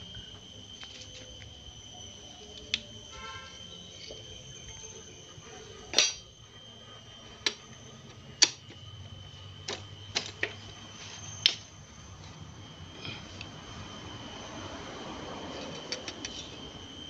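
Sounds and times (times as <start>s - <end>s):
faint steady high tone: 0.0s - 8.2s
metal engine parts clicking: 5.9s - 6.3s.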